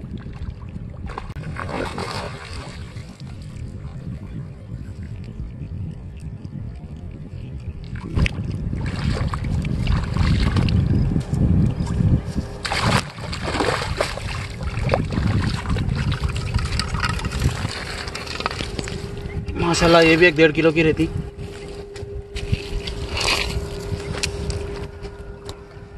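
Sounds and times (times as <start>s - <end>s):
wind rumbling on microphone: 0.0s - 25.9s
fish splashing in water: 1.0s - 3.2s, 12.6s - 19.2s.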